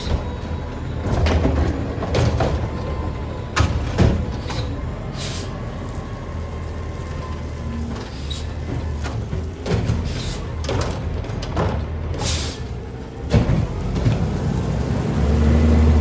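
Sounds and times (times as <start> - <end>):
garbage truck engine running: 0.0 - 16.0
short hiss: 4.5 - 5.6.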